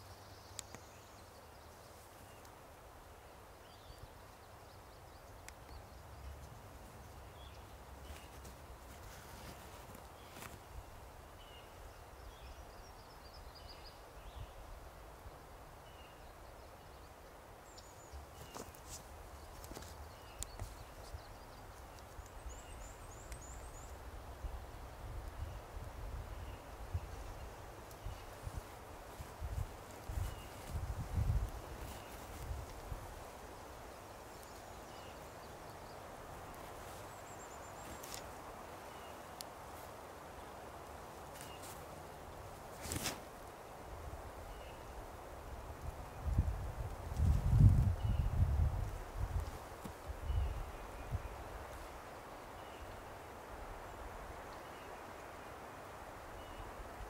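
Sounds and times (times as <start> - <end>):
small birds chirping: 0.0 - 45.1.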